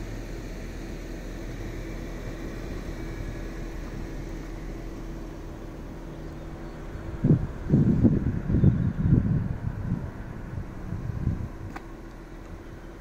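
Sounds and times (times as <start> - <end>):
wind buffeting microphone: 6.8 - 12.6.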